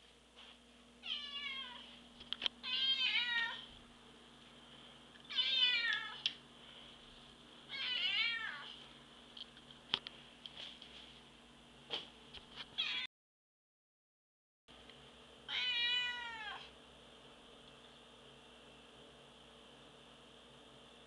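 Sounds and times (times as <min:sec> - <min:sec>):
cat meowing: 0:01.0 - 0:01.8, 0:02.6 - 0:03.7, 0:05.3 - 0:06.2, 0:07.7 - 0:08.7, 0:15.5 - 0:16.7.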